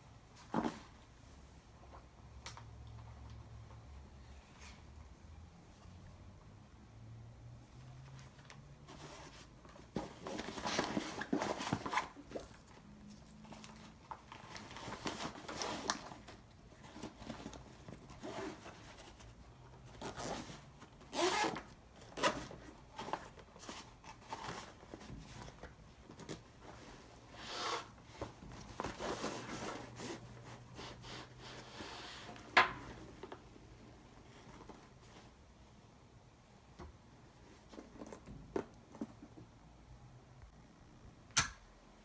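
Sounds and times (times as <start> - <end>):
zipper pulls: 21.1 - 21.6.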